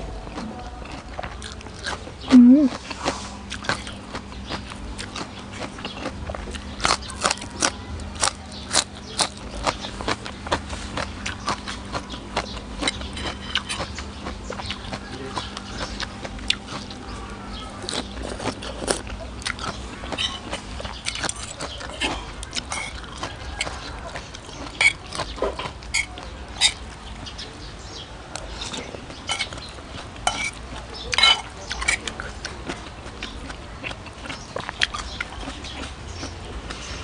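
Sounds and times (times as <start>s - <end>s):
wet chewing with mouth clicks: 0.2s - 27.6s, 28.3s - 37.0s
metal cutlery clicking on plate: 29.3s - 29.6s, 30.2s - 30.6s, 31.2s - 32.2s.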